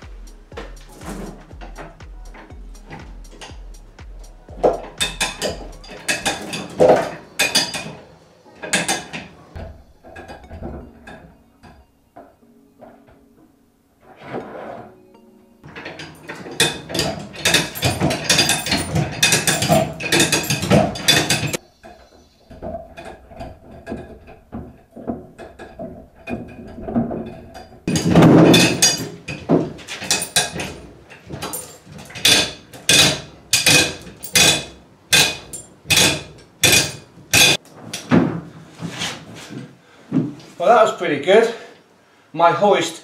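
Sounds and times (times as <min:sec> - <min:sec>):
metallic ratchet clicking: 0:04.6 - 0:06.7
chain rattle: 0:04.6 - 0:08.0, 0:15.7 - 0:21.6, 0:25.0 - 0:37.6.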